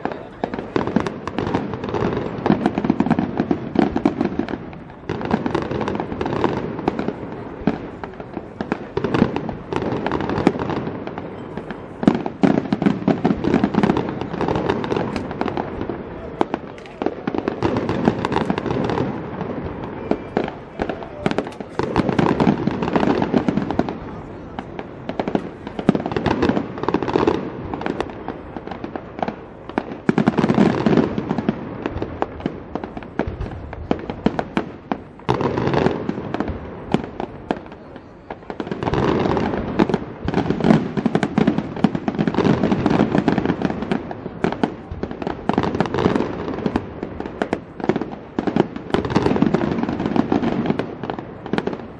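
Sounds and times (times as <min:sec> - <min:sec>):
fireworks bangs and crackling: 0:00.0 - 0:51.9.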